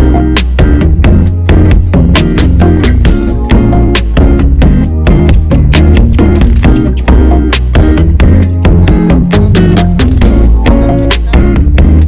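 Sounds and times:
music with fast drum beat: 0.0 - 12.0.

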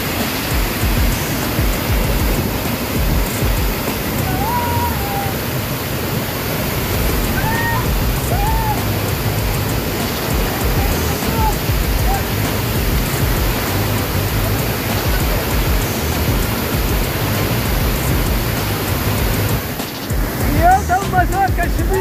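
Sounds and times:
waterfall rushing: 0.0 - 22.0
faint high-pitched calls: 3.3 - 6.0.

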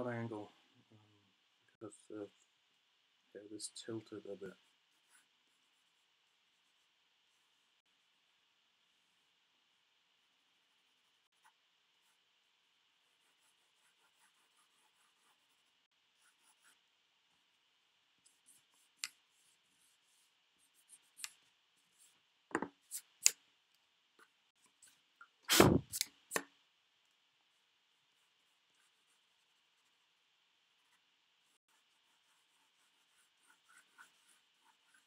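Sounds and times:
pencil drawing on paper: 4.5 - 22.2, 27.5 - 35.0.

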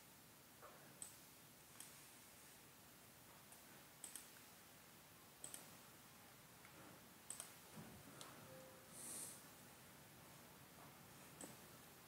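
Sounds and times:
computer mouse clicks: 1.0 - 2.0, 3.5 - 4.5, 5.4 - 5.8, 6.6 - 7.6, 11.4 - 11.6.

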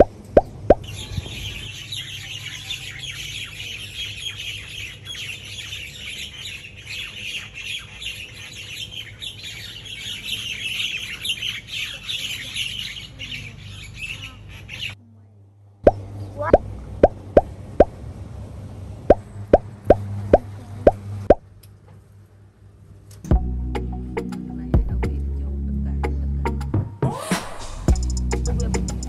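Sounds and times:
flock of birds chirping: 0.4 - 15.0.

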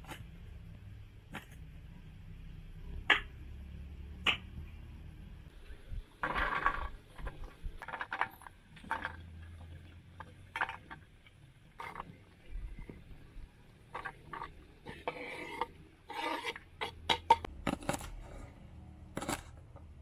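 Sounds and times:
blade scraping board: 13.9 - 18.6.

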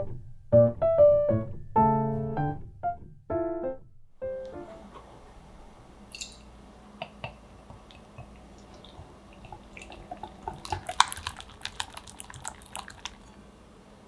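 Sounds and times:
whisk beating in glass bowl: 9.5 - 13.4.

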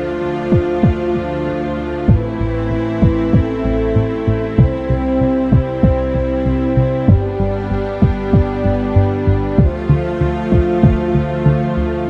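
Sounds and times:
held synth chord: 0.0 - 12.0
low drum thudding: 2.1 - 2.3, 3.0 - 3.6, 5.5 - 6.0, 7.1 - 7.3, 8.0 - 8.6, 9.6 - 9.8, 10.5 - 11.1.

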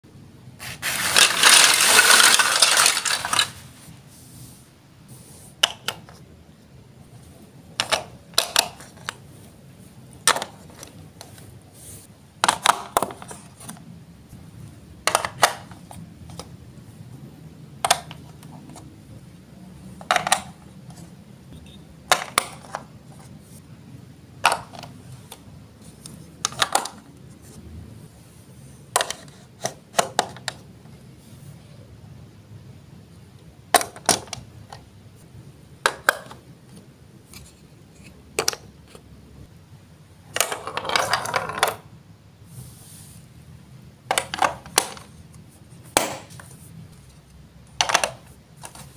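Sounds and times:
plastic bricks clicking: 0.8 - 3.6, 7.8 - 9.2, 12.4 - 13.4, 15.0 - 16.4, 20.0 - 20.6, 22.1 - 22.9, 24.4 - 24.9, 26.4 - 27.0, 35.8 - 36.4, 40.3 - 41.8, 44.1 - 45.1, 47.7 - 48.9
plastic clatter: 0.8 - 3.6, 12.4 - 13.8, 15.0 - 16.5, 20.0 - 21.0, 24.4 - 24.9, 26.4 - 27.0, 40.3 - 41.8, 44.1 - 45.1, 47.7 - 48.9.

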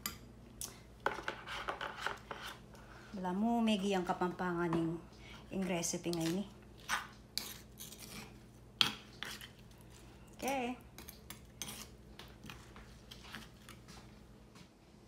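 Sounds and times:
spoon scraping stone bowl: 1.1 - 2.6, 6.1 - 9.6, 11.0 - 13.6
spoon stirring wet marinade: 3.7 - 14.2.

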